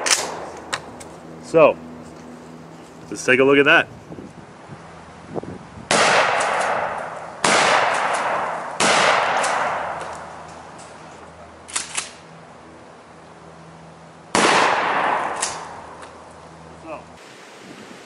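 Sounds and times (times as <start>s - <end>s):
shotgun shots booming: 0.0s - 0.8s, 5.9s - 10.2s, 14.3s - 15.9s.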